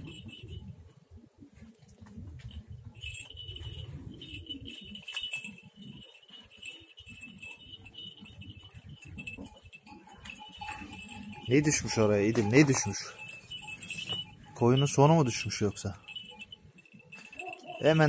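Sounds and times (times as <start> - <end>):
small bell tinkling: 0.0 - 18.0.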